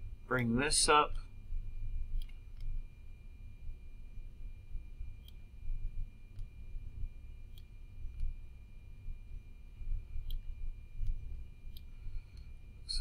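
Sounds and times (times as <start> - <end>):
faint high-pitched whine: 0.0 - 13.0
low background rumble: 0.0 - 13.0
computer mouse clicking: 2.1 - 2.7, 5.2 - 5.4, 6.3 - 6.6, 7.5 - 8.4, 10.2 - 12.5.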